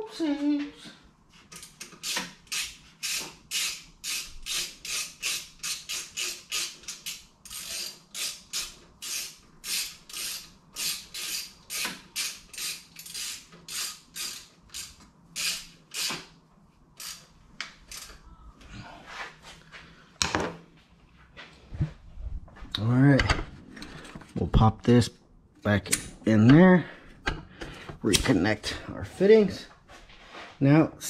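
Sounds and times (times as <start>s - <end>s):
ratchet wrench clicking: 1.5s - 16.3s, 17.0s - 17.2s, 17.9s - 18.2s.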